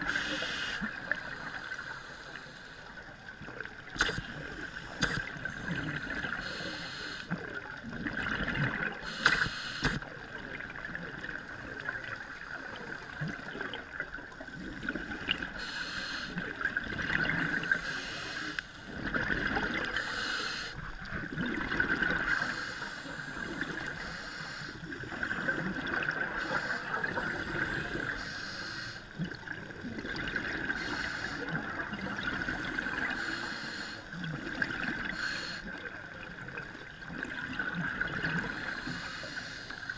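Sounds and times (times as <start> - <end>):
regulator air hiss: 0.0 - 0.9, 6.4 - 7.3, 9.0 - 10.0, 15.6 - 16.4, 17.8 - 18.8, 19.9 - 20.8, 22.3 - 23.2, 24.0 - 24.8, 26.4 - 27.0, 28.1 - 29.1, 30.7 - 31.5, 33.2 - 34.1, 35.1 - 35.7, 38.6 - 39.9
exhaled bubbles rushing: 7.4 - 9.0, 16.4 - 17.8, 18.8 - 20.0, 20.8 - 22.4, 24.8 - 28.2, 29.2 - 33.2, 34.1 - 35.1, 36.2 - 38.7.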